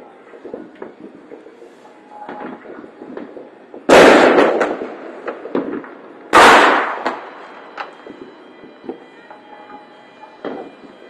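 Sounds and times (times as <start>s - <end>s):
firework pops and crackles: 0.0s - 11.0s
loud firework bangs: 2.2s - 11.0s.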